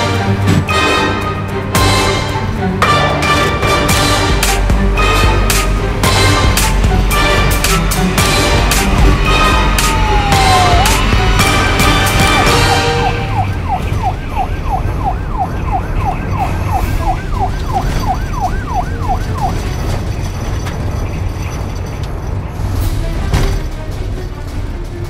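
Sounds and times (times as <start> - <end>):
police siren yelp: 9.2 - 19.8.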